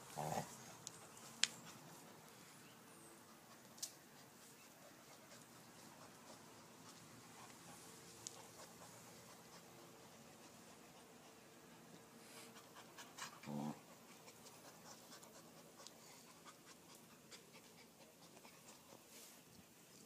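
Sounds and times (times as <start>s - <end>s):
dog grunt: 0.1s - 0.5s, 13.2s - 13.8s.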